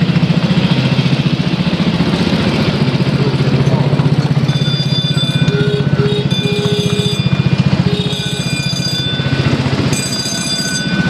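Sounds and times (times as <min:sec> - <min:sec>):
miniature train locomotive pulsing: 0:00.0 - 0:11.0
thin high whining tones: 0:04.5 - 0:11.0.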